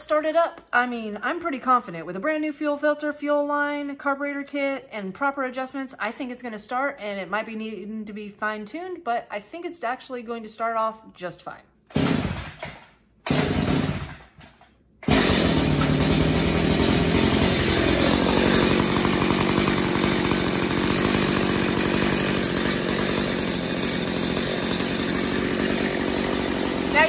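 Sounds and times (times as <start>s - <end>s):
chainsaw engine running: 11.9s - 12.6s, 13.3s - 14.3s, 15.0s - 27.0s
chainsaw starter pulls: 11.9s - 27.0s.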